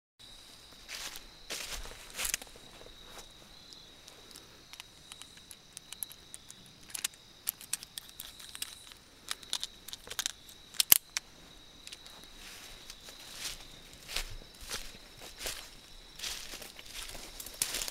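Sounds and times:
revolver metallic clicks and rattles: 4.7 - 11.2.

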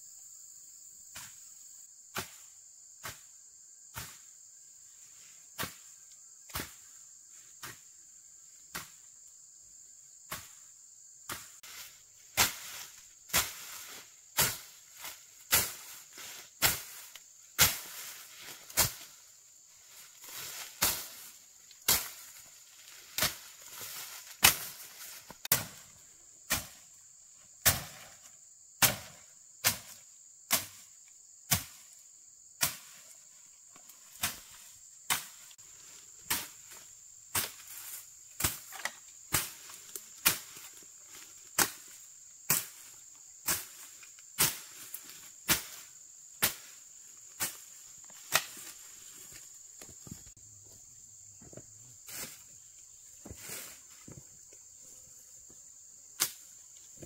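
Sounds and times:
sharp tool strikes: 25.4 - 25.8, 28.8 - 30.8.

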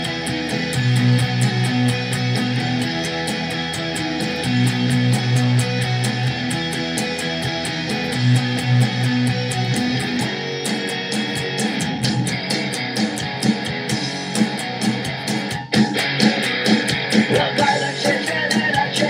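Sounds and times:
electric guitar strummed: 0.0 - 19.0
rock recording with drums: 0.0 - 19.0.

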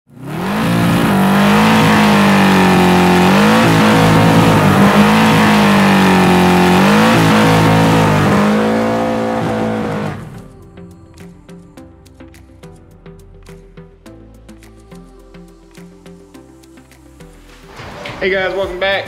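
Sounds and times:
car engine revving high: 0.1 - 10.5.

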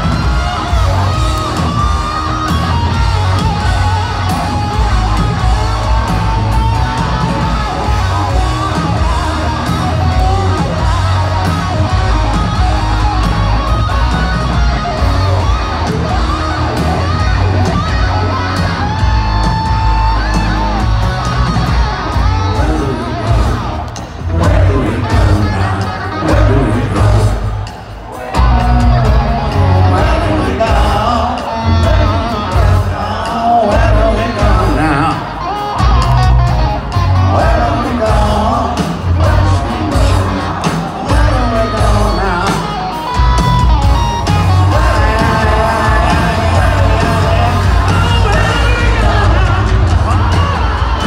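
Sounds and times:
electric guitar solo: 0.0 - 30.5
bass guitar: 0.0 - 51.0
drums: 0.0 - 51.0.

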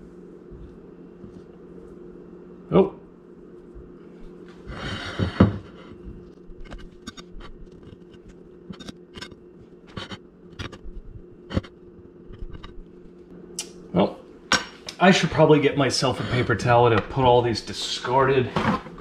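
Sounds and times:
low steady hum: 0.0 - 19.0
knife scraping bread crust: 6.5 - 10.9.

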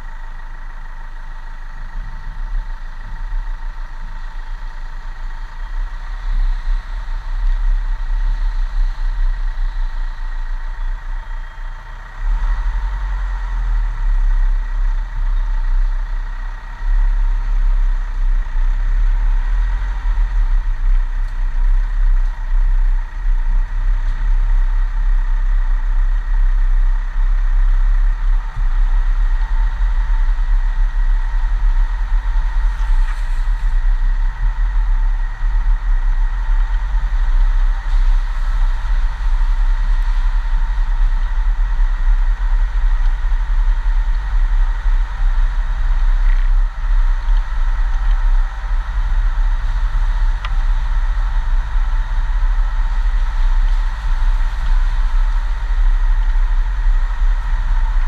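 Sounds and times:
vehicle engine on dirt lane: 0.0 - 58.0.

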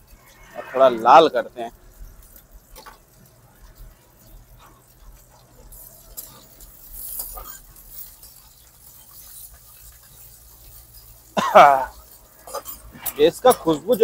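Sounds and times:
spatula scraping metal pan: 0.0 - 1.5, 11.9 - 14.0
faint frying sizzle: 0.0 - 14.0.

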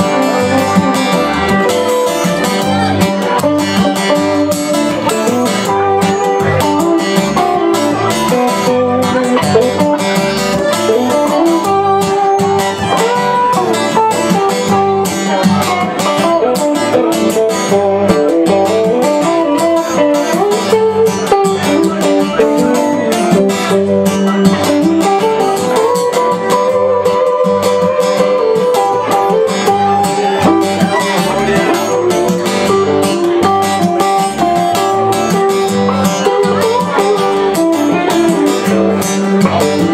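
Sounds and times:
bowed fiddle: 0.0 - 39.9
strummed acoustic guitars: 0.0 - 39.9.

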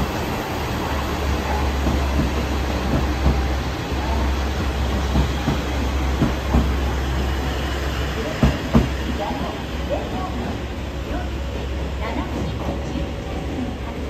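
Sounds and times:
train wheels thumping on rail joints: 1.5 - 7.3, 8.2 - 10.6.

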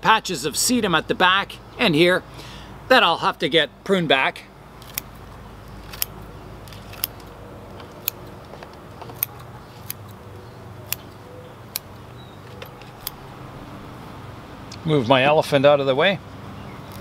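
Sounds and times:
scissors snipping stems: 4.8 - 10.2, 10.8 - 13.3
low steady hum: 10.2 - 15.2.

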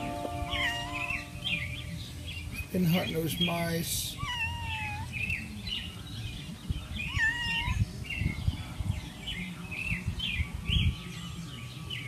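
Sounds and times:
wavering bird call: 0.0 - 1.8
small birds chirping: 0.0 - 12.0.

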